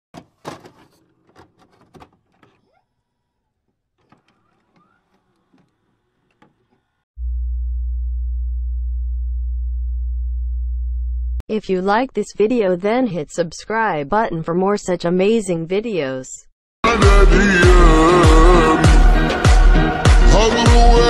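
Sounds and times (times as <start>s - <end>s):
deep bass test tone: 7.2s - 11.4s.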